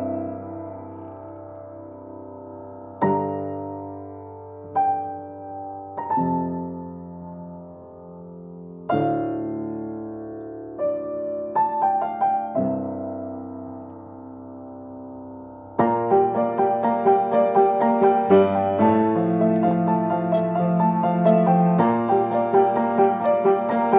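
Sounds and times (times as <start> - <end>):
grand piano playing: 0.0 - 23.9.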